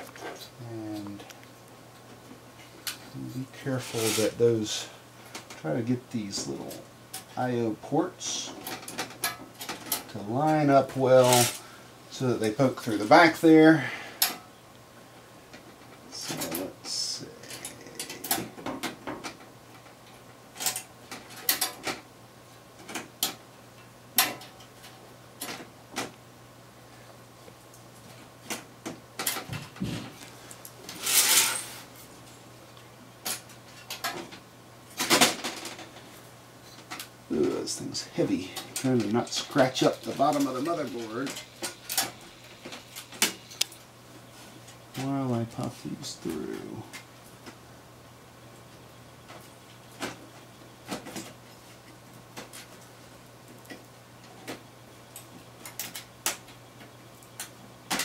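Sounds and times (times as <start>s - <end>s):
faint steady hum: 0.0s - 58.0s
scraping rustles: 2.0s - 7.5s, 8.2s - 11.8s, 27.9s - 32.4s.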